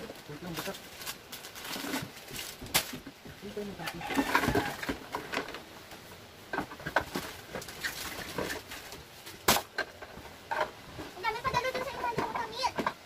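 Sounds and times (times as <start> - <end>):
plastic pots knocking in cardboard box: 4.0 - 5.5.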